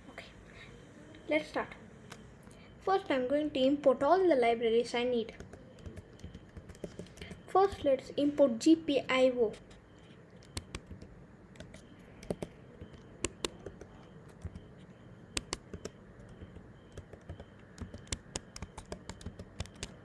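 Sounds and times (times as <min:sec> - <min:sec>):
keyboard key clicks: 0:10.4 - 0:14.6, 0:15.4 - 0:20.0.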